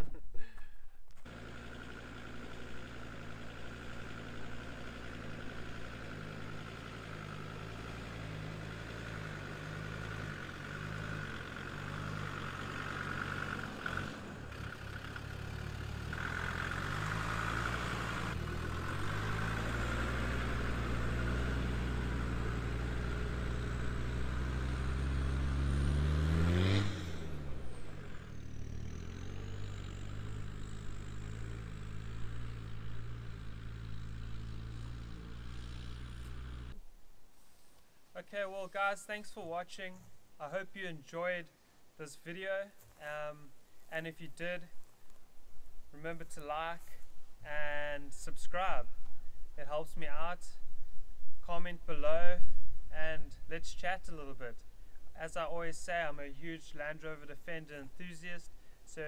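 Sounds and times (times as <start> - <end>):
diesel car engine passing by: 1.2 - 36.8.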